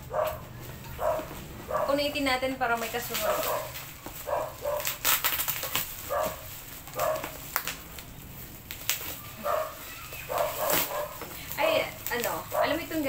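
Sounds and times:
dog barking: 0:00.1 - 0:00.4, 0:01.0 - 0:02.0, 0:03.2 - 0:05.0, 0:06.1 - 0:07.4, 0:09.4 - 0:11.2, 0:12.5 - 0:13.0
bubble wrap rustling and crinkling: 0:00.1 - 0:13.0.

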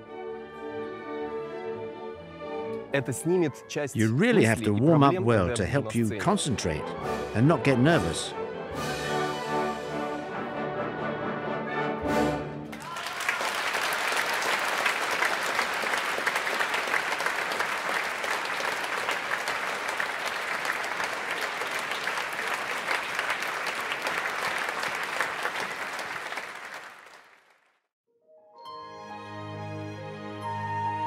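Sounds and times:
orchestra playing with brass: 0:00.0 - 0:12.7
audience applause: 0:12.7 - 0:27.9.

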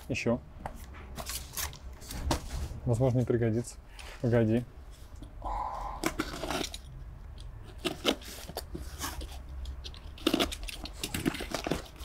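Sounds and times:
packing material crunching and rustling: 0:07.6 - 0:12.0.

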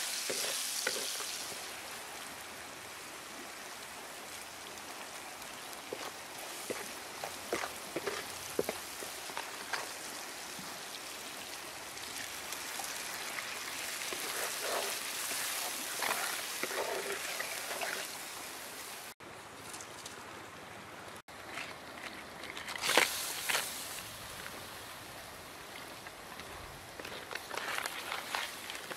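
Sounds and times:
spatula scraping a wok: 0:00.0 - 0:01.4, 0:13.8 - 0:18.2
food sizzling in hot oil: 0:00.0 - 0:19.2, 0:22.8 - 0:24.1
sauce bubbling: 0:04.6 - 0:18.4.

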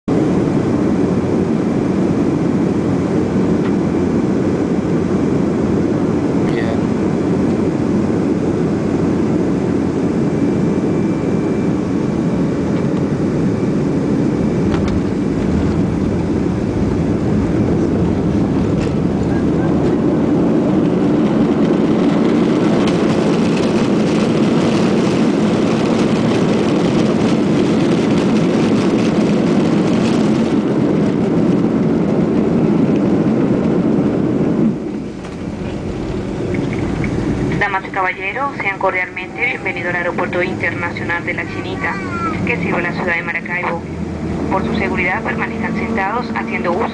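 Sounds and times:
jet engine and airflow rush: 0:00.1 - 0:46.9.

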